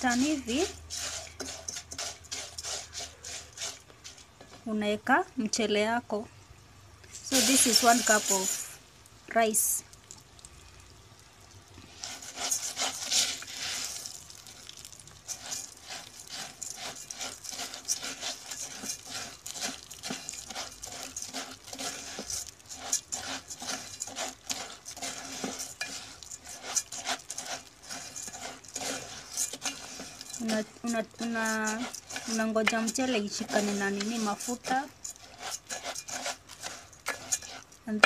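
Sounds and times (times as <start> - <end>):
plastic spoon scraping pot: 0.0 - 4.5, 11.9 - 14.1, 15.3 - 38.0
oil sizzling: 0.0 - 38.0.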